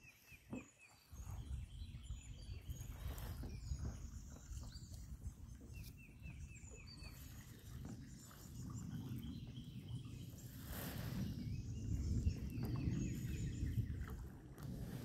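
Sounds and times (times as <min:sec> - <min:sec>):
birds chirping: 0:00.0 - 0:14.2
wind rumble on microphone: 0:00.0 - 0:15.0.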